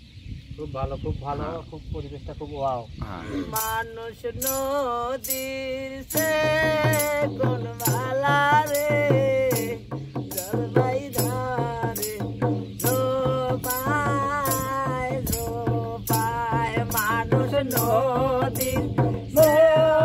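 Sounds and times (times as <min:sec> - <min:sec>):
man singing folk song: 0:03.3 - 0:20.0
barrel drum beat: 0:05.3 - 0:20.0.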